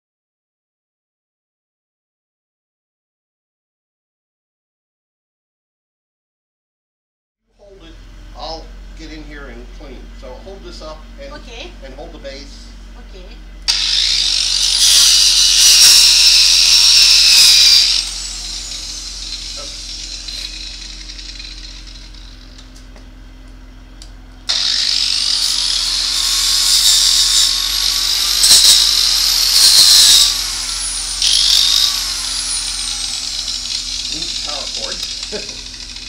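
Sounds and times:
angle grinder whining: 13.6s - 36.0s
grinder grinding against metal: 13.7s - 22.8s, 24.5s - 36.0s.

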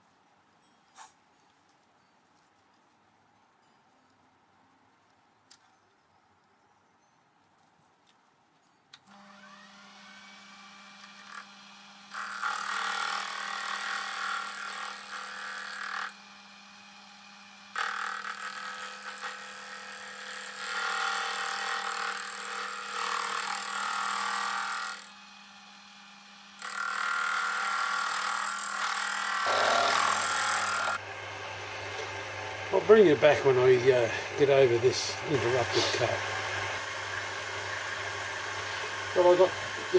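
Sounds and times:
lathe tool cutting metal: 26.6s - 39.9s
lathe motor hum: 28.9s - 39.9s.

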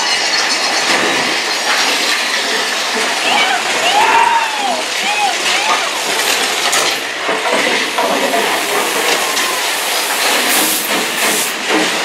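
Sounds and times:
roller coaster cars clattering: 0.0s - 12.0s
fog effect hissing: 5.9s - 12.0s.

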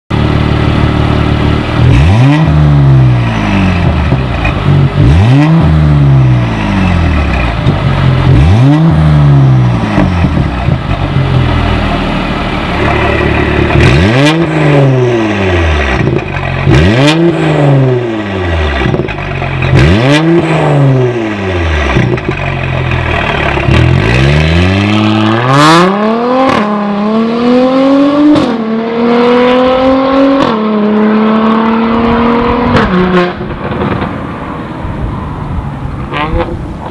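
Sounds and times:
car engine revving: 0.1s - 36.9s
exhaust cracks: 7.1s - 26.9s, 32.5s - 36.9s
car accelerating through gears: 23.7s - 33.5s.

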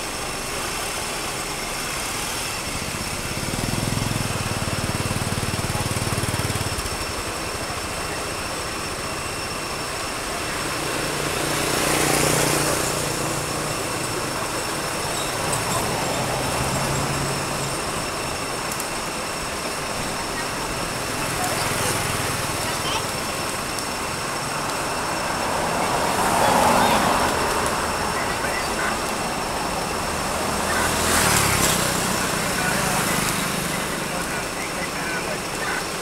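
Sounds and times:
outdoor background noise: 0.0s - 36.0s
motor vehicle passing: 10.3s - 18.6s, 19.3s - 35.8s.

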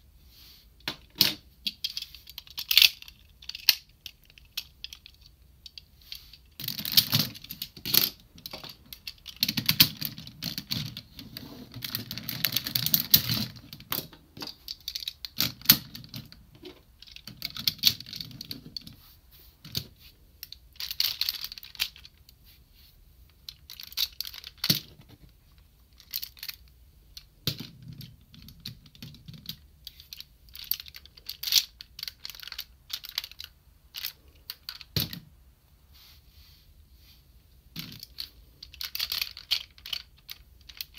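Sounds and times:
plastic clicks and clattering: 0.8s - 5.9s.

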